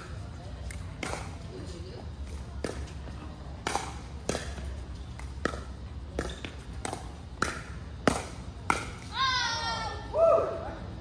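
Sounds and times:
paddles hitting plastic ball: 0.0 - 1.5, 2.2 - 9.2
steady low hum: 0.0 - 11.0.

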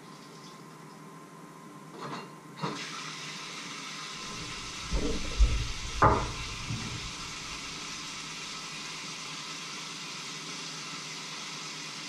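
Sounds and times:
steady hiss: 2.8 - 12.0
cookware thuds and knocks: 4.3 - 7.1.

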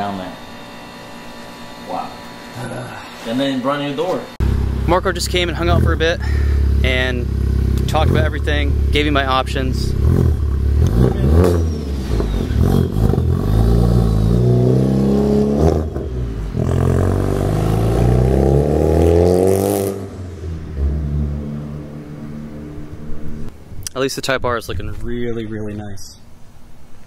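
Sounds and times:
car engine accelerating hard: 4.4 - 23.5.

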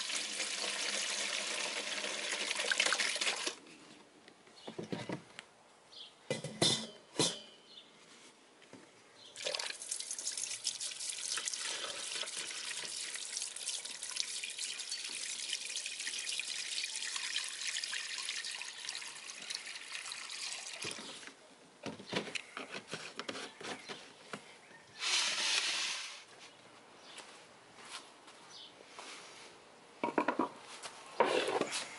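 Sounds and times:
liquid pouring into steel bowl: 9.4 - 21.1
drips: 9.4 - 21.3.

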